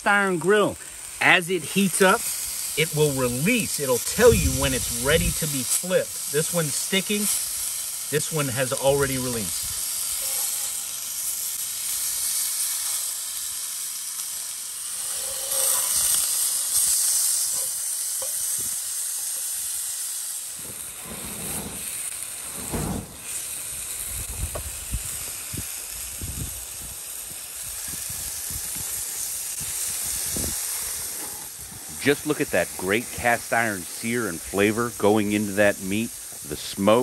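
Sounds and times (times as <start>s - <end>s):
fish sizzling in a pan: 0.1s - 37.0s
wind rumble on microphone: 24.0s - 27.0s, 27.6s - 29.0s, 29.6s - 30.6s.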